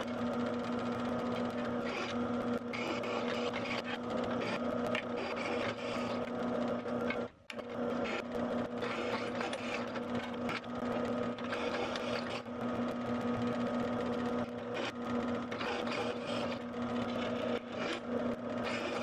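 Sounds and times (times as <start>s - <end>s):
drill press motor humming: 0.0s - 19.0s
drill bit scraping through steel: 5.2s - 6.2s, 8.8s - 9.9s, 15.5s - 16.6s, 18.6s - 19.0s.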